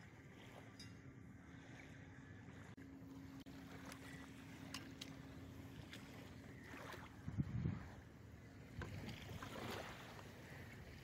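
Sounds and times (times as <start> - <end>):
wind buffeting microphone: 6.9 - 11.0.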